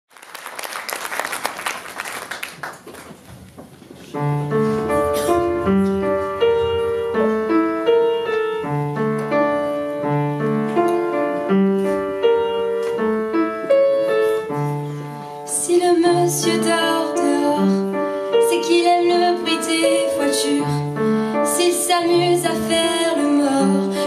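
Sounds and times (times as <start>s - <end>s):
applause: 0.1s - 3.3s
piano playing chords: 4.2s - 24.0s.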